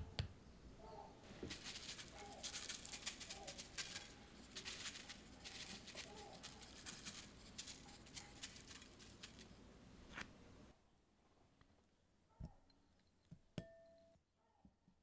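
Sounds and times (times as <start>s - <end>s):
sugar pattering onto tray: 1.3s - 9.6s.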